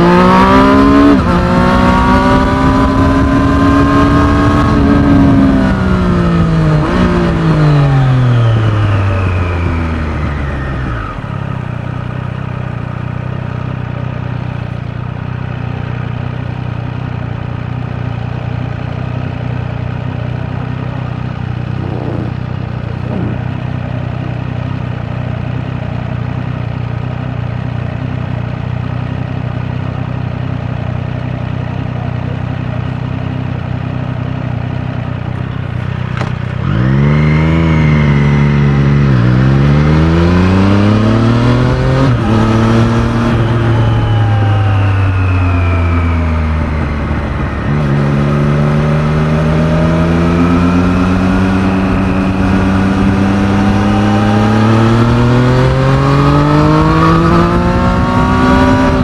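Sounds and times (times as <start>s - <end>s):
motorcycle revving and upshifting: 0.0s - 28.2s, 31.2s - 59.0s
motorcycle engine idling: 8.4s - 36.6s.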